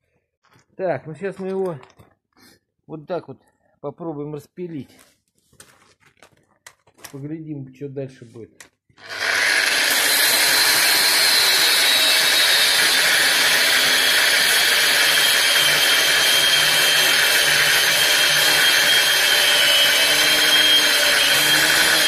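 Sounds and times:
angle grinder cutting metal: 9.0s - 22.0s.

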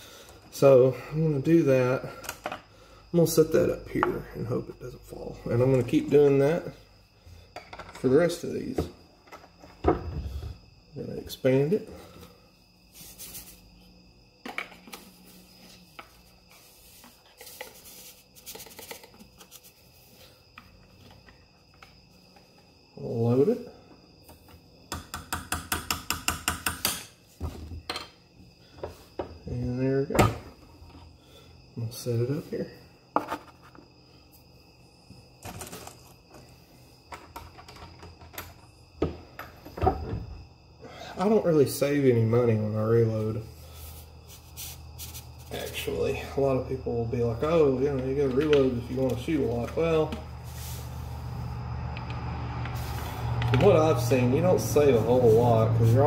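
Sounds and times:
rubbing and scraping on a bench: 12.9s - 13.6s, 15.1s - 20.4s, 43.4s - 45.8s, 50.4s - 51.3s.

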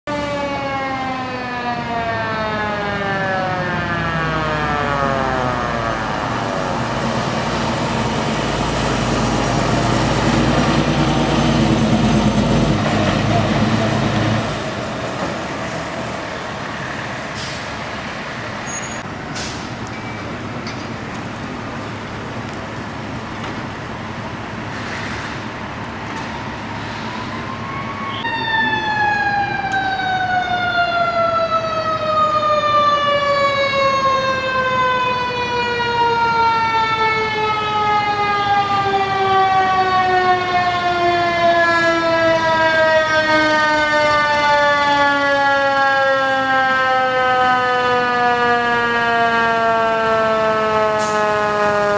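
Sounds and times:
mechanical siren wailing: 0.1s - 8.4s, 26.3s - 51.9s
fire truck engine: 0.1s - 51.9s.

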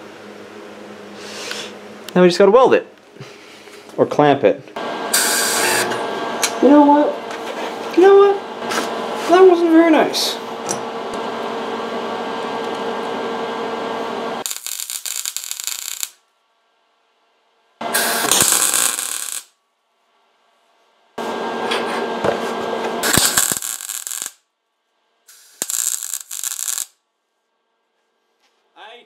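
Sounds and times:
arc welder crackling: 4.8s - 9.6s, 10.6s - 16.2s, 17.8s - 19.6s, 21.2s - 24.4s, 25.3s - 27.0s.

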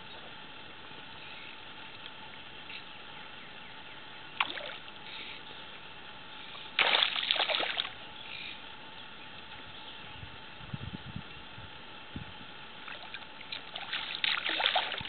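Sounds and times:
fish splashing at water surface: 6.8s - 8.0s, 12.9s - 15.0s.

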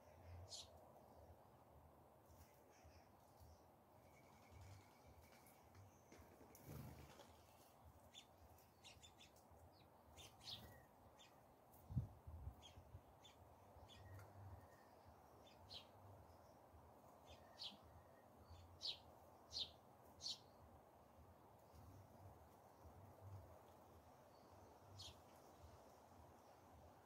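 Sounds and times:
sparrows chirping: 0.1s - 0.8s, 2.4s - 11.5s, 12.5s - 20.7s, 23.6s - 25.6s.

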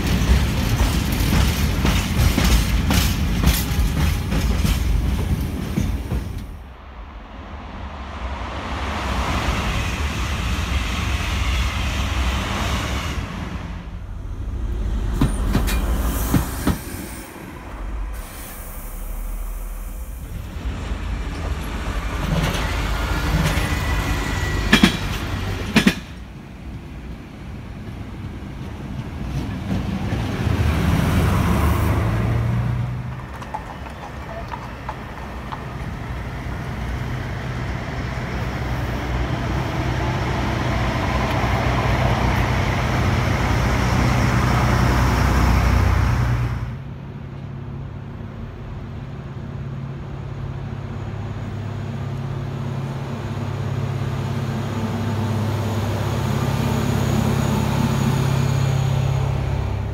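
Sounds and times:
trains running past: 0.0s - 59.9s
diesel engines droning: 30.6s - 59.9s.

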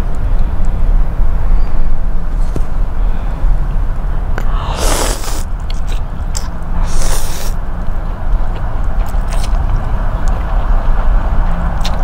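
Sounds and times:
steady low hum: 0.0s - 12.0s
chewing and mouth clicks: 4.4s - 7.6s, 8.4s - 10.8s, 11.8s - 12.0s
slurping noodles: 4.6s - 7.6s.

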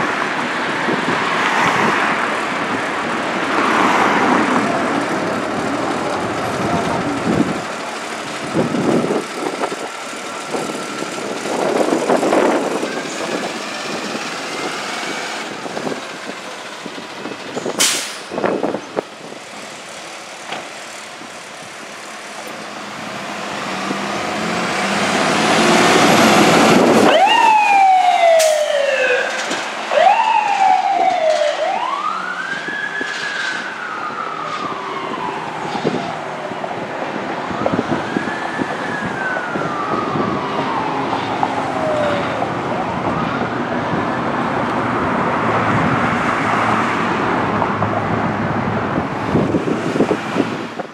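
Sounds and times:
fire truck engine running: 4.5s - 46.0s
electronic siren wailing: 26.0s - 36.4s, 37.3s - 44.4s.

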